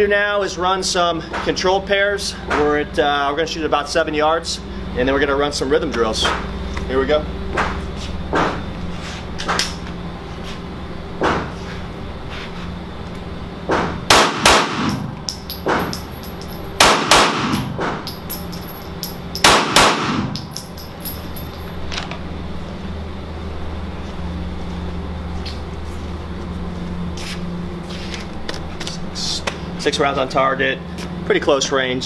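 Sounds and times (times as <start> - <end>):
pistol shots echoing: 14.1 - 15.1, 16.8 - 17.7, 19.4 - 20.4
shell casings clinking on concrete: 15.3 - 16.7, 18.0 - 19.6, 20.4 - 21.8.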